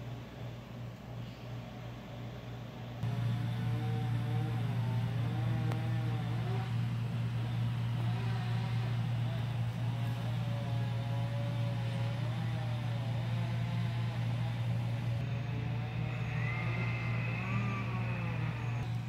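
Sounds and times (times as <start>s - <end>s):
low mechanical hum: 0.0s - 19.0s
faint wavering tones: 14.0s - 19.0s.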